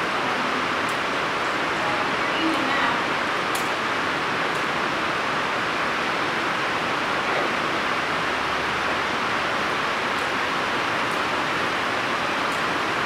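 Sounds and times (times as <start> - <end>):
people talking: 0.0 - 1.0, 1.7 - 3.2
rain on a roof: 0.0 - 13.0.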